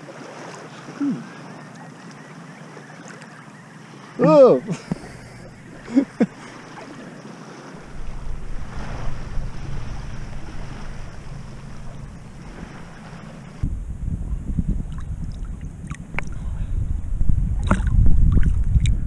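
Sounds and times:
sea water lapping: 0.0 - 13.7, 14.8 - 16.7
wind buffeting microphone: 4.7 - 19.0.

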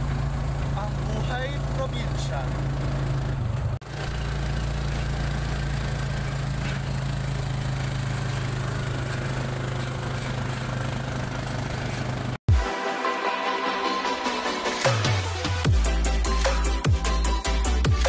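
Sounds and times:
road and wind noise: 0.0 - 12.4
vehicle engine droning: 0.0 - 12.4.

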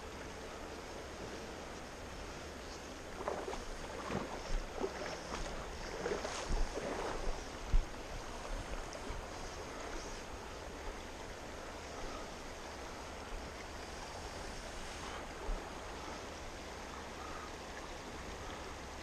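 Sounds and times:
fast river rushing: 3.0 - 19.0
water splashing close by: 3.1 - 10.8.

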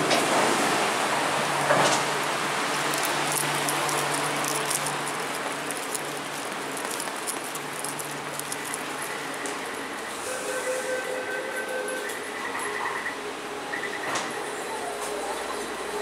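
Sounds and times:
metro train humming and hissing: 0.0 - 3.7, 8.9 - 16.0.

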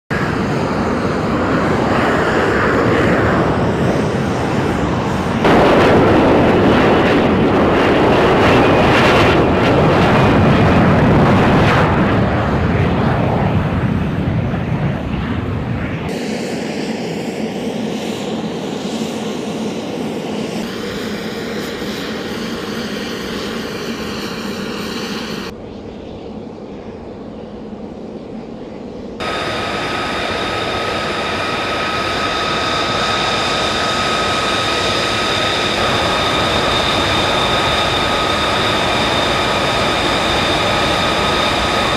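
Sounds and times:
loud jet engine noise: 0.1 - 41.9.

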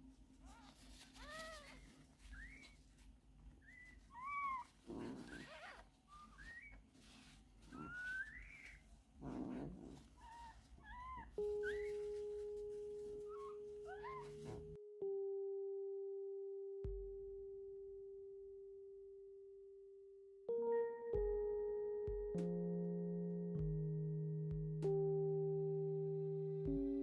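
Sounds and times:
tissue paper rubbing: 0.4 - 14.8.

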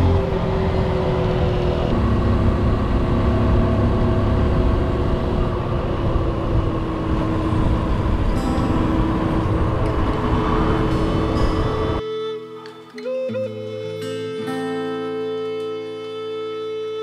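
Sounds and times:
motorcycle engine running: 0.0 - 12.0
wind buffeting microphone: 0.0 - 12.0.

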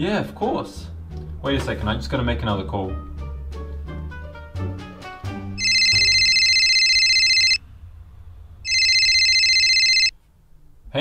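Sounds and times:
phone ringtone: 5.6 - 7.6, 8.7 - 10.2.

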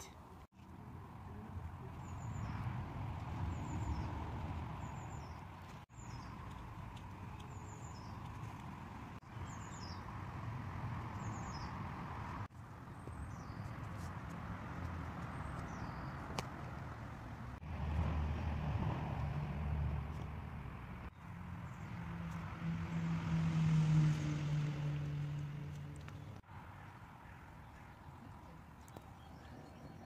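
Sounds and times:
small bird chirping: 4.8 - 10.1.

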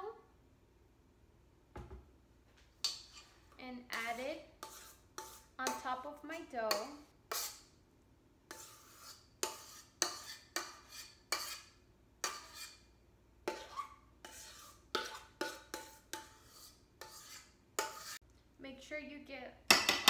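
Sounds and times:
spoon scraping metal bowl: 2.8 - 6.0, 6.7 - 7.8, 8.5 - 18.2.

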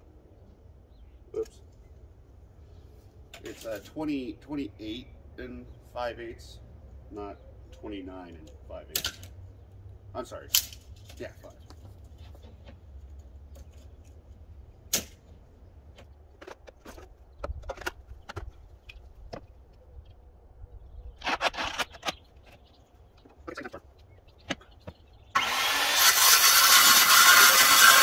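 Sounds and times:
electric saw cutting wood: 25.3 - 28.0.

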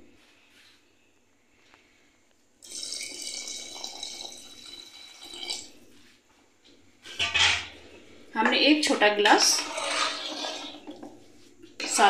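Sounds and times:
water pouring into gravy: 2.6 - 5.7, 9.6 - 11.1.

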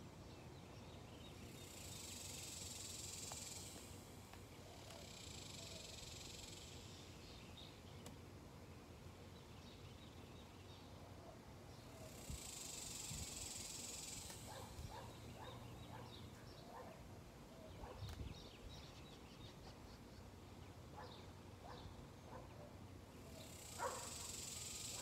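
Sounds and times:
high insect buzz: 1.4 - 7.2, 12.1 - 15.6, 23.4 - 25.0.

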